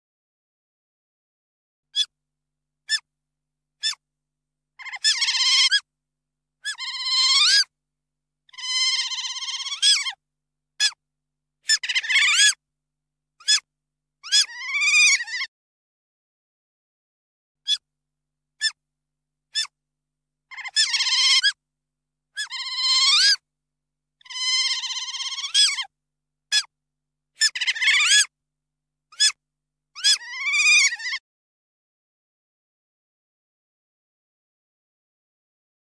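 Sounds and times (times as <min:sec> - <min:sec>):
otter chirp: 0:04.8 - 0:05.8, 0:08.5 - 0:10.2, 0:20.5 - 0:21.6, 0:24.2 - 0:25.9, 0:27.4 - 0:28.3.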